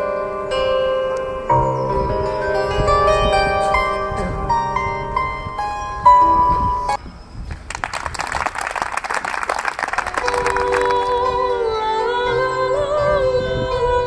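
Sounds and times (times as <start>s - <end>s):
plucked bandura notes: 0.0s - 6.7s
applause: 7.5s - 11.3s
woman singing with vibrato: 10.0s - 14.0s.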